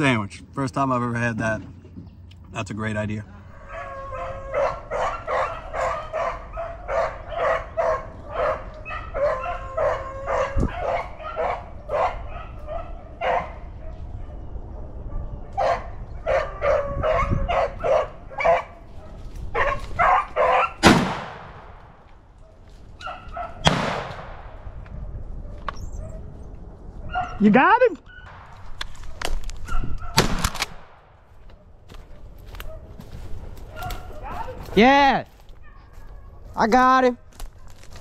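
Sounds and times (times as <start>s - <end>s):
beagles baying and yelping: 3.4s - 20.9s, 22.3s - 23.7s, 24.7s - 30.2s, 31.4s - 38.0s
shotgun shots: 20.8s - 22.0s, 23.6s - 24.6s, 30.1s - 31.2s.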